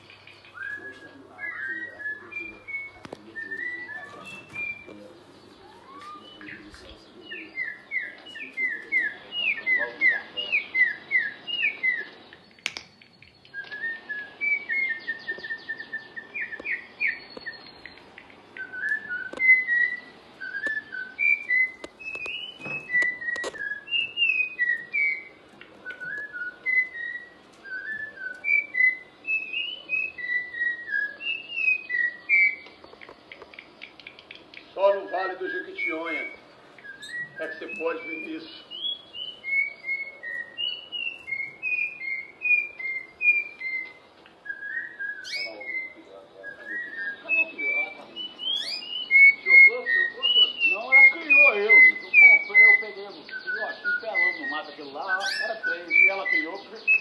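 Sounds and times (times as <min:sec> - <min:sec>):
canaries singing: 0:00.0 - 0:57.0
faint sharp clicks: 0:32.6 - 0:34.7.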